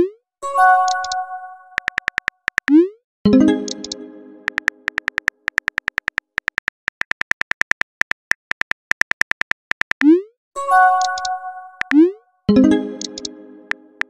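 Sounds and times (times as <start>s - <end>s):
phone keyboard clicks: 0.8s - 1.2s, 1.8s - 2.8s, 3.7s - 10.1s, 13.0s - 13.3s.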